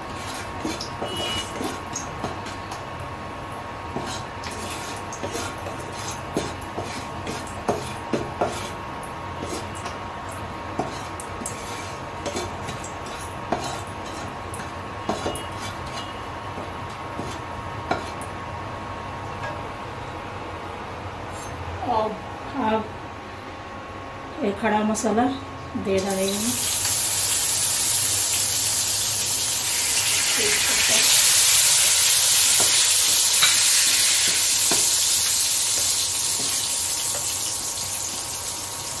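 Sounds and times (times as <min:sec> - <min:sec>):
spatula scraping a pan: 0:00.1 - 0:02.6, 0:03.9 - 0:08.8, 0:09.4 - 0:09.8, 0:10.8 - 0:16.2, 0:17.2 - 0:18.2, 0:30.5 - 0:37.3
oil sizzling: 0:26.0 - 0:39.0.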